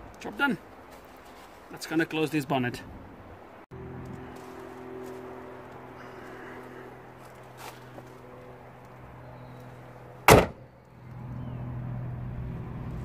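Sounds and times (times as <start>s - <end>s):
steady low hum: 3.7s - 13.0s
car bonnet slammed shut: 10.2s - 10.7s.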